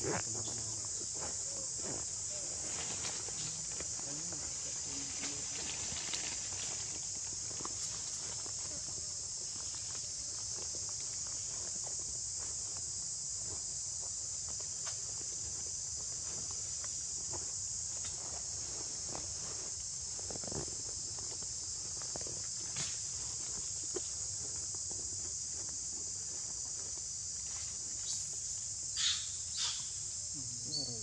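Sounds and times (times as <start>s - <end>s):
insects chirring: 0.0s - 31.0s.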